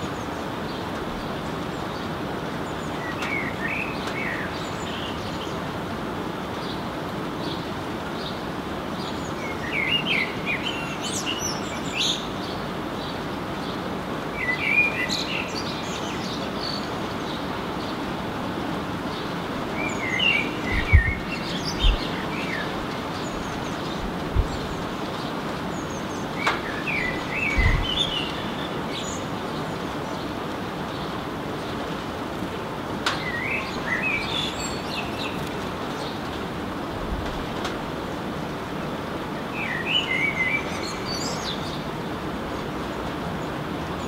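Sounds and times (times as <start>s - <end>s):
blackbird singing: 0.0s - 5.7s, 9.0s - 13.8s, 14.4s - 18.0s, 19.1s - 31.8s, 33.1s - 36.3s, 39.5s - 41.9s.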